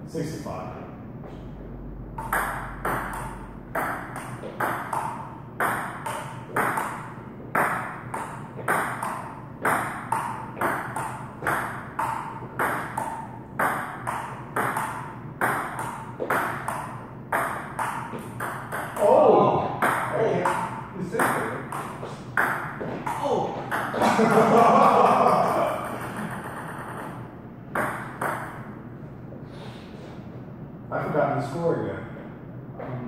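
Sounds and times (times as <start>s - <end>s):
table tennis ball rally clicks: 25.9s - 27.2s.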